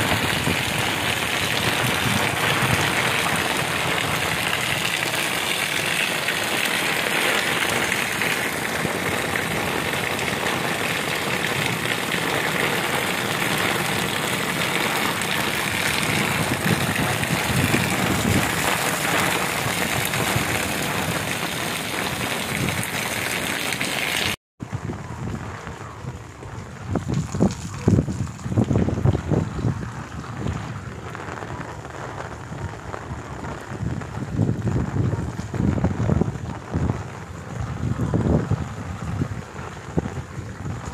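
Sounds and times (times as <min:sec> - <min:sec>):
heavy rain on concrete: 0:00.0 - 0:40.9.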